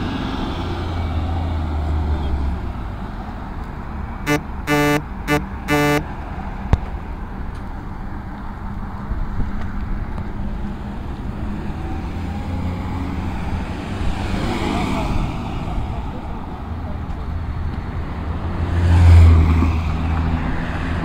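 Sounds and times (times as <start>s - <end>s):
road traffic: 0.0s - 21.0s
vehicle horn honking: 4.3s - 6.1s.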